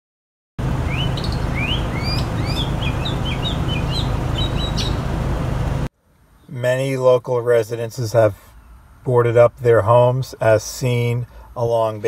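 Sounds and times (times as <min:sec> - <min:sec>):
steady low hum: 0:00.6 - 0:06.6
outdoor noise: 0:00.6 - 0:12.0
small birds chirping: 0:00.7 - 0:05.8.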